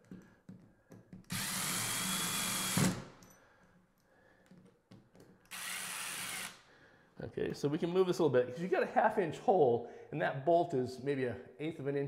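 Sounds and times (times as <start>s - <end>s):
power driver spinning screw: 1.3s - 3.0s, 5.5s - 6.6s.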